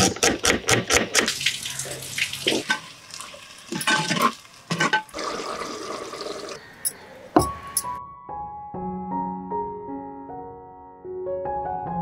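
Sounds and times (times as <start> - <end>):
knife chopping on wooden board: 0.0 - 1.3.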